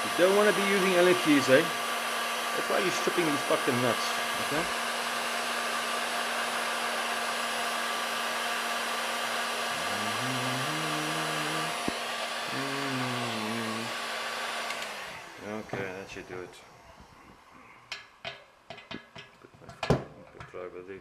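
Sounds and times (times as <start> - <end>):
heat gun blowing: 0.0 - 19.2
man humming: 9.6 - 14.0.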